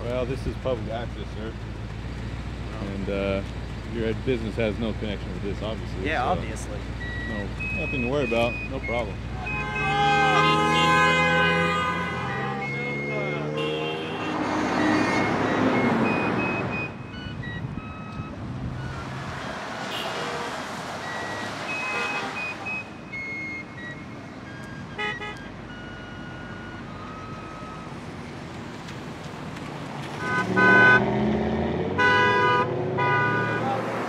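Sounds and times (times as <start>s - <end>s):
cars rushing by: 0.0s - 34.0s
car horns honking: 6.2s - 28.0s, 30.1s - 34.0s.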